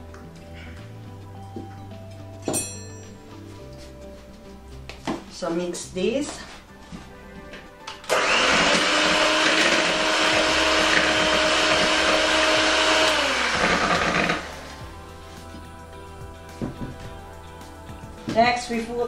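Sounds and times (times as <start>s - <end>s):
electric mixer whirring: 8.1s - 14.8s.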